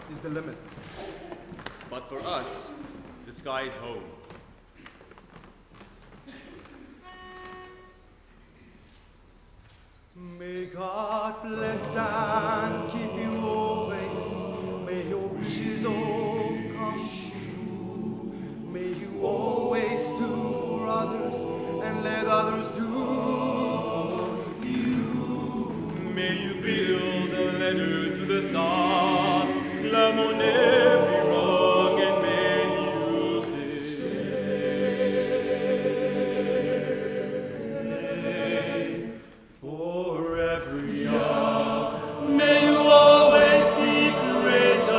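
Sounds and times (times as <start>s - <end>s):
male choir singing: 10.7s - 44.9s.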